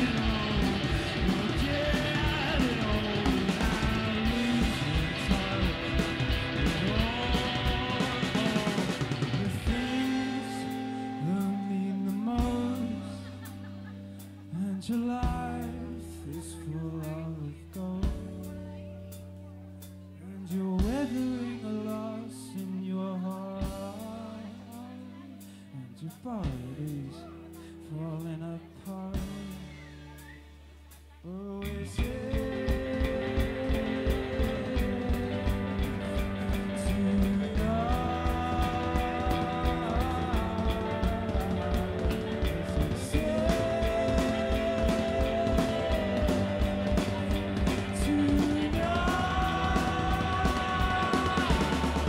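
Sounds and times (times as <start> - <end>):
man singing: 0.0 - 13.7, 14.5 - 18.8, 20.1 - 30.3, 31.2 - 52.0
steady drum beat: 0.0 - 13.7, 32.0 - 52.0
electric guitar long notes: 0.0 - 14.6, 32.0 - 52.0
rock band playing live: 0.0 - 25.7, 26.4 - 31.0, 31.7 - 52.0
bass guitar: 0.0 - 52.0.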